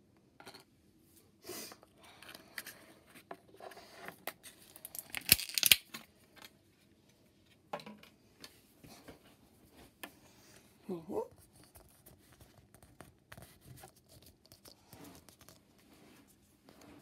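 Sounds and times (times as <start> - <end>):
packaging tearing: 4.9 - 5.9.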